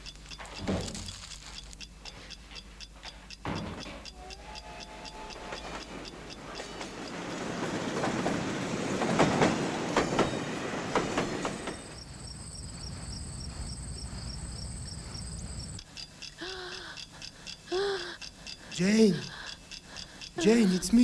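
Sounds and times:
clattering machinery with clacks: 0:03.0 - 0:11.9.

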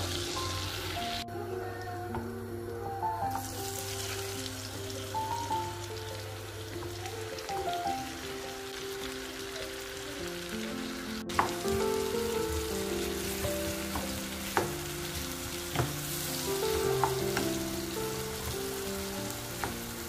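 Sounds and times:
vegetables sizzling in oil: 0:00.0 - 0:01.2, 0:03.3 - 0:20.0
background music: 0:00.0 - 0:20.0
wooden spoon knocking on pan: 0:11.3 - 0:17.7, 0:19.5 - 0:20.0.

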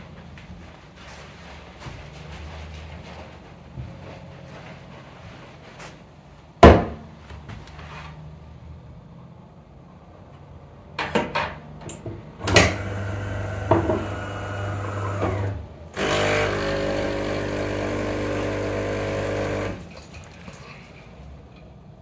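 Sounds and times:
pump buzzing: 0:12.4 - 0:19.9
coffee grinder running: 0:12.7 - 0:19.9.

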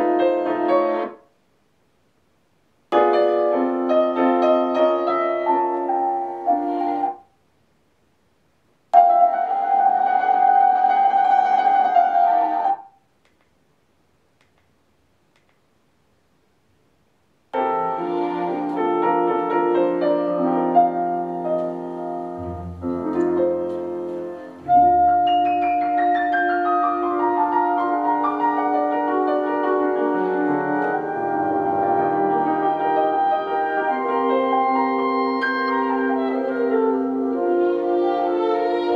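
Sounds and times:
classical piano with orchestra: 0:00.0 - 0:01.2, 0:03.0 - 0:07.3, 0:09.0 - 0:12.9, 0:17.6 - 0:38.9.

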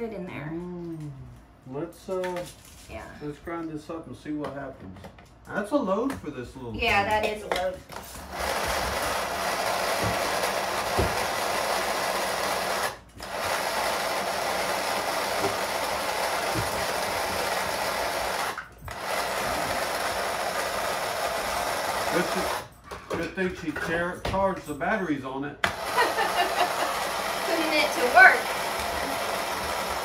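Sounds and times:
electric spice grinder whirring: 0:08.2 - 0:22.7, 0:25.6 - 0:30.0.

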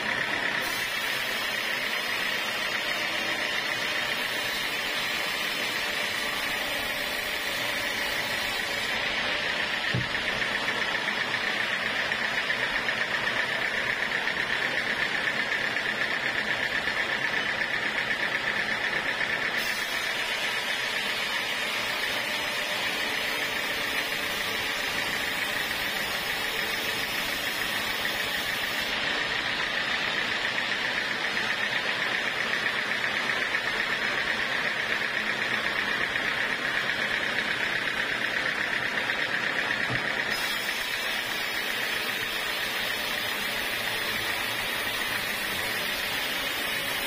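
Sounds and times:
band saw cutting log: 0:00.0 - 0:47.0
high saw whine: 0:00.0 - 0:47.0.

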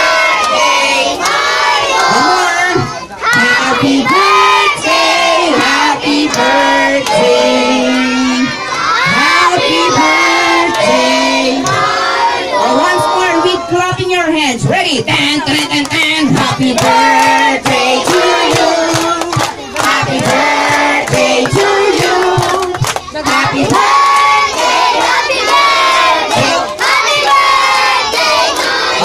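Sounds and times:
crowd singing birthday song: 0:00.0 - 0:29.0
hands clapping: 0:00.4 - 0:02.2, 0:03.3 - 0:03.5, 0:15.1 - 0:29.0.

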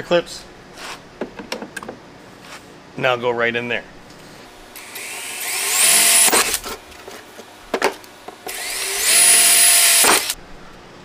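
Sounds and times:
cordless drill boring pipe: 0:04.8 - 0:06.6, 0:08.5 - 0:10.4.

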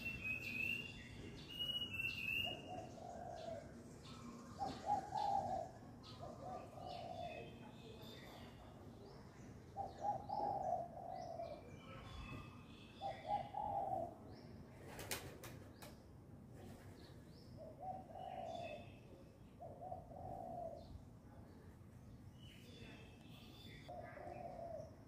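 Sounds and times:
dove cooing: 0:02.4 - 0:03.8, 0:04.6 - 0:07.5, 0:09.8 - 0:11.7, 0:13.0 - 0:14.2, 0:17.6 - 0:18.9, 0:19.6 - 0:20.9, 0:23.9 - 0:25.0.

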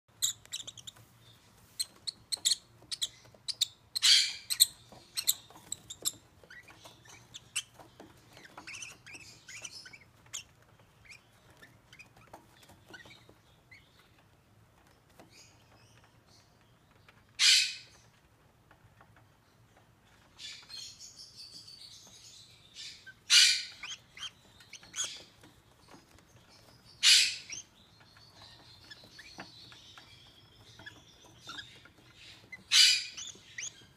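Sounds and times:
lovebirds chirping: 0:00.1 - 0:33.9
loud high-pitched bird calls: 0:01.8 - 0:10.5, 0:17.4 - 0:18.0, 0:22.8 - 0:25.3, 0:27.0 - 0:27.7, 0:28.4 - 0:33.9.

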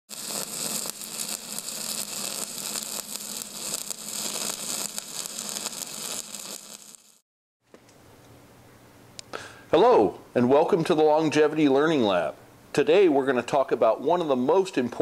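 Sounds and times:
crackling hiss: 0:00.1 - 0:07.2.

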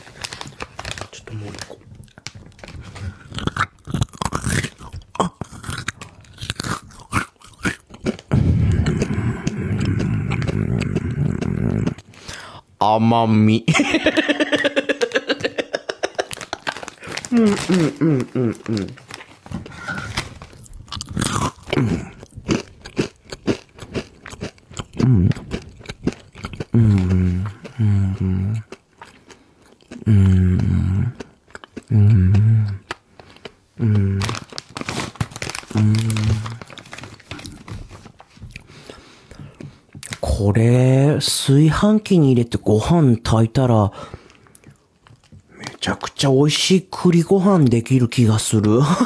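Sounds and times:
crunchy snack chewing: 0:00.0 - 0:12.2, 0:16.2 - 0:37.8
person humming mm: 0:08.3 - 0:12.0, 0:17.3 - 0:19.0, 0:21.7 - 0:22.2, 0:25.0 - 0:25.4, 0:26.7 - 0:28.7, 0:30.0 - 0:31.3, 0:31.9 - 0:32.9, 0:33.8 - 0:34.4, 0:35.7 - 0:36.6.

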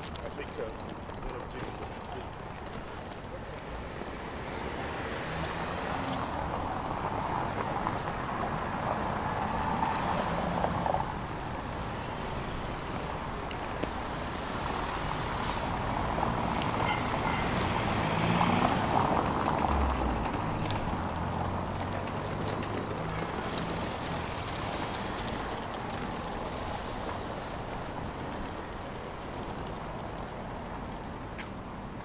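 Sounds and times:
cars driving over cobblestones: 0:00.0 - 0:32.0.

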